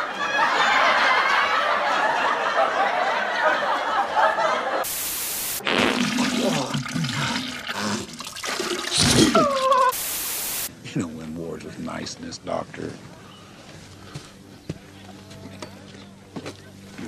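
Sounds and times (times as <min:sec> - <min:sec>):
tv static hiss: 0:04.8 - 0:05.8, 0:09.9 - 0:10.7.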